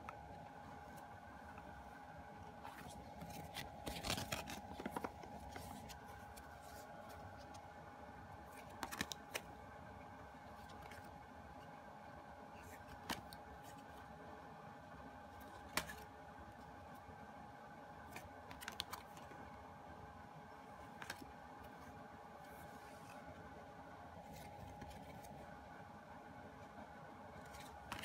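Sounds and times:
paper pages rustling: 0.4s - 7.7s, 8.4s - 9.6s, 10.4s - 11.2s, 12.6s - 14.0s, 15.4s - 16.1s, 18.1s - 19.4s, 20.8s - 23.3s, 24.2s - 25.5s, 27.4s - 28.0s.

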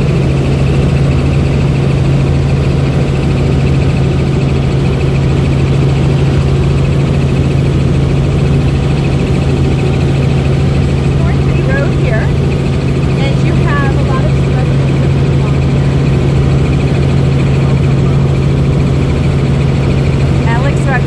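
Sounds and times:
helicopter drone inside cabin: 0.0s - 21.0s.

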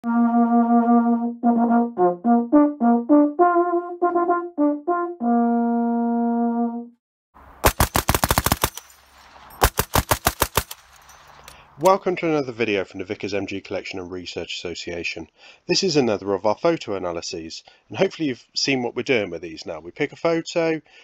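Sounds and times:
machine gun burst: 7.6s - 11.5s.

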